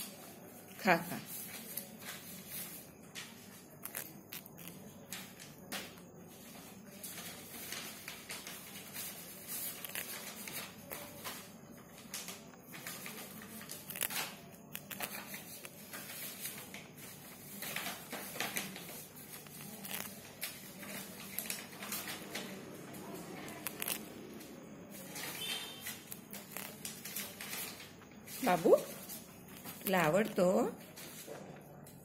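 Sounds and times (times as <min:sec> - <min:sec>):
rabbit chewing leaf: 0:03.8 - 0:05.2, 0:08.4 - 0:11.3, 0:13.6 - 0:16.5, 0:18.2 - 0:24.4, 0:25.4 - 0:27.7.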